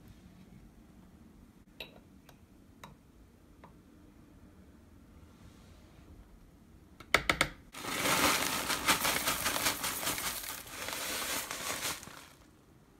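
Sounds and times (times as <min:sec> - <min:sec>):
herbs crinkling and rustling: 0:07.8 - 0:12.5.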